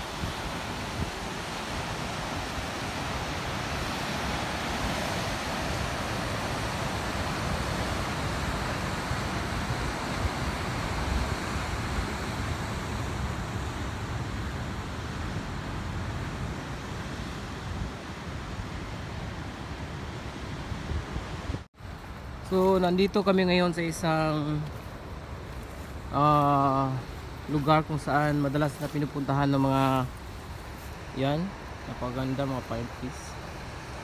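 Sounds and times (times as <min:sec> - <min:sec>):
ocean surf breaking on rocks: 0:00.0 - 0:21.7.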